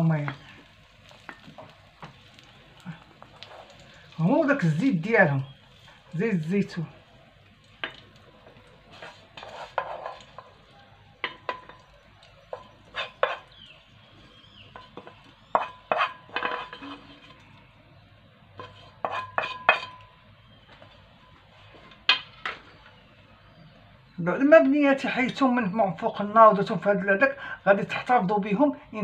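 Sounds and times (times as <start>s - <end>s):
utensil clinking against a pan: 7.8s - 10.6s, 11.2s - 13.6s, 14.6s - 17.4s, 18.6s - 20.2s.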